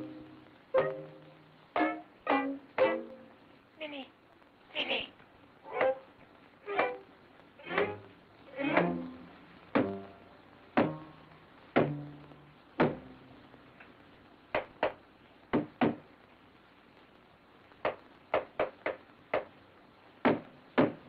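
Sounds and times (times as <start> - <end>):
low struck notes: 0.0 - 3.4, 7.7 - 13.4.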